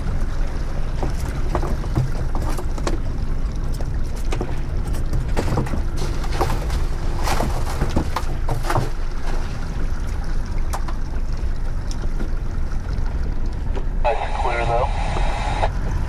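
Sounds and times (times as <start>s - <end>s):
outboard motor rumbling: 0.0s - 16.0s
water noise: 0.0s - 16.0s
wind: 0.0s - 16.0s
sharp knocks and clatter: 4.1s - 9.3s.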